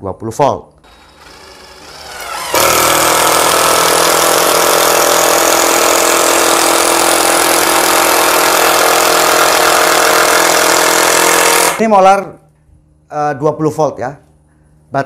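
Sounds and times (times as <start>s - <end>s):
impact driver hammering: 0.8s - 11.9s.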